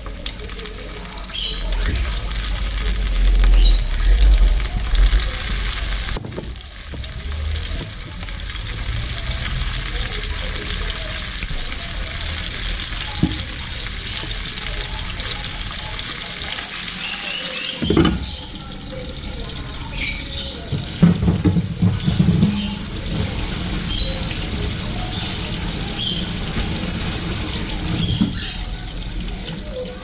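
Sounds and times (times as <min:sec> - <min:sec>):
fish sizzling in a pan: 0:00.0 - 0:30.0.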